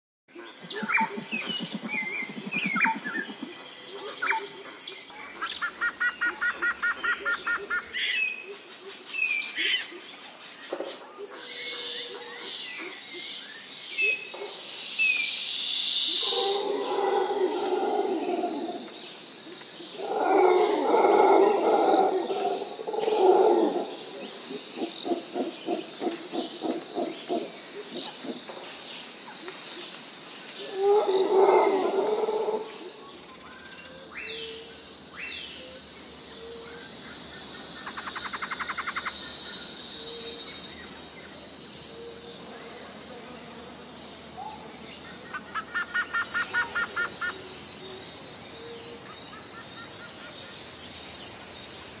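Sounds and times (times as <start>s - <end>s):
bird chirps and trills: 0.4s - 8.4s, 36.4s - 42.1s
rapid pulsed calls: 0.6s - 8.0s, 34.0s - 42.6s.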